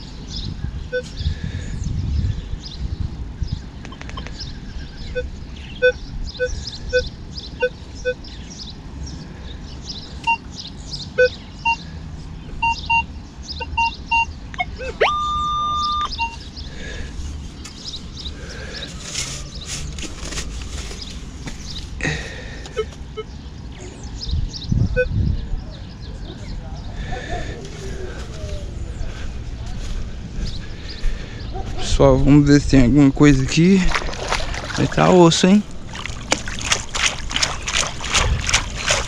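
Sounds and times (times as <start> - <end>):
metal detector beeps: 0.9 - 1.1, 5.1 - 8.2, 10.3 - 10.5, 11.2 - 11.8, 12.6 - 16.4
metal detector rising tone: 14.8 - 16.4.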